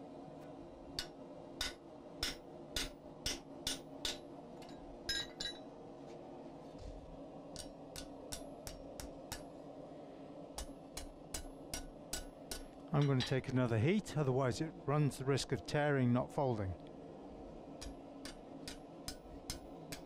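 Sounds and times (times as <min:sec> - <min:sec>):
hammer striking chisel on hot steel: 0:01.0 - 0:05.6, 0:07.5 - 0:09.5, 0:10.6 - 0:13.4, 0:17.8 - 0:20.0.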